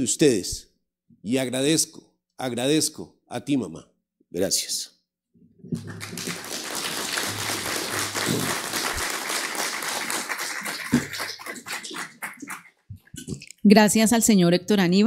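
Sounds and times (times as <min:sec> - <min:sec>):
audience applauding: 0:05.7 - 0:12.8.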